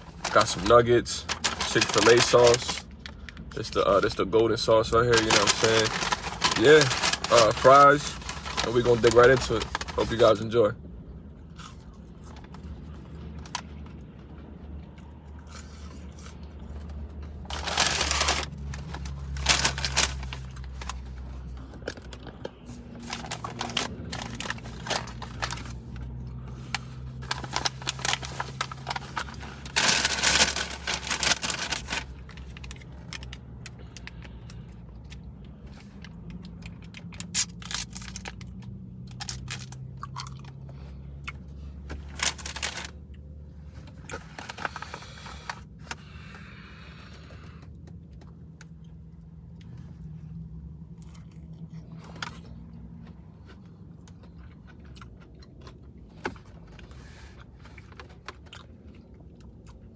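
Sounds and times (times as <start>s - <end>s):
paper and foil bags rustling: 0.0s - 2.9s, 3.6s - 10.6s, 17.4s - 22.0s, 22.6s - 33.3s, 41.8s - 43.0s, 43.8s - 46.1s
low steady hum: 0.0s - 59.9s.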